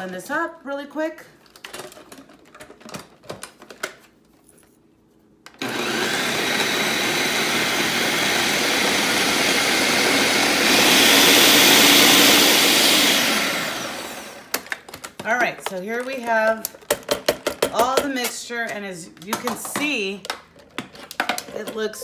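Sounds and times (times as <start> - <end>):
blender motor running: 5.6 - 14.6.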